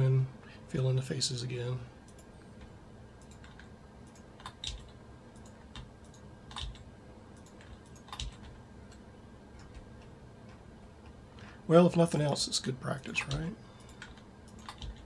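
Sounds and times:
keyboard and mouse clicks: 2.1 - 9.0, 9.6 - 11.2, 13.2 - 15.0.

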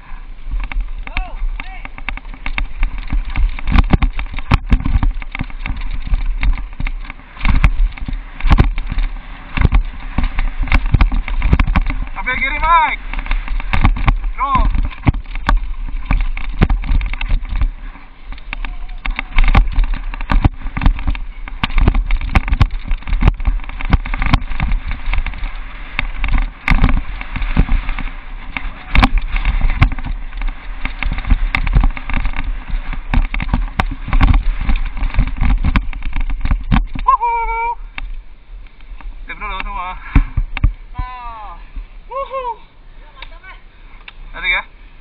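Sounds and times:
wind rush: 0.0 - 42.8
bike rattling and knocking: 0.4 - 41.2.

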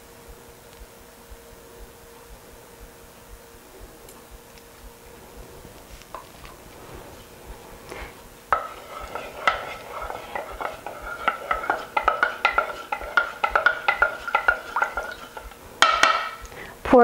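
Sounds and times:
spoon knocking against plastic bowl: 8.5 - 16.5.

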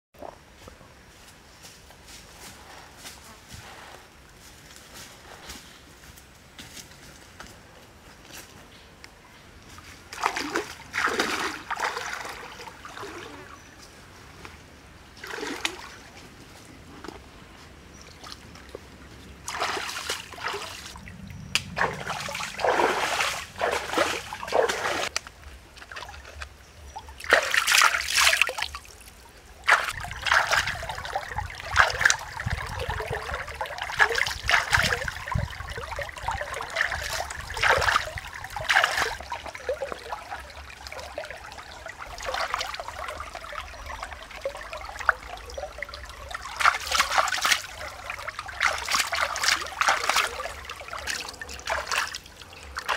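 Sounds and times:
stream trickling: 9.7 - 52.9
hands splashing in water: 10.1 - 13.3, 19.5 - 21.0, 21.6 - 25.1, 27.2 - 40.4, 42.1 - 52.9.

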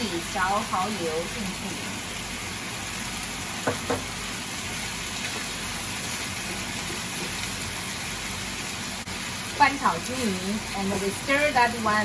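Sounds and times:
mushrooms sizzling in a pan: 0.0 - 12.0
spatula knocking against pan: 3.6 - 4.1.

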